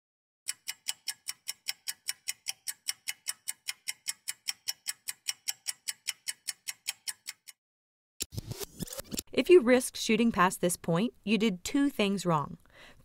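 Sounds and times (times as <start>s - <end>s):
fast clock-like ticking: 0.5s - 7.6s.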